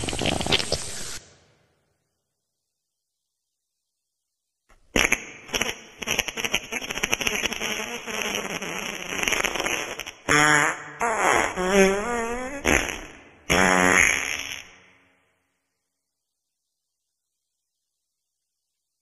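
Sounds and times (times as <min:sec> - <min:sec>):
wet farts: 0:00.0 - 0:01.2, 0:04.9 - 0:14.8.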